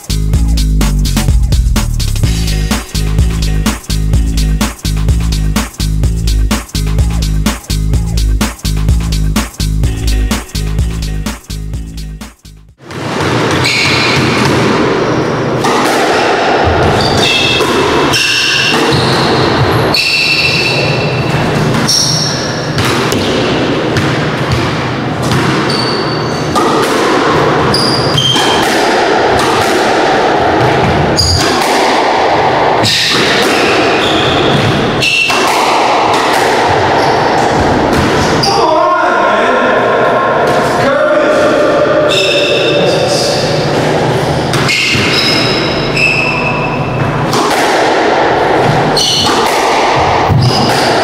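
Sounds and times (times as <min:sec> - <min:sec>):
squash ball hits: 0:12.8 - 0:21.9, 0:22.6 - 0:25.7, 0:26.5 - 0:38.4, 0:44.5 - 0:45.6, 0:47.2 - 0:51.0.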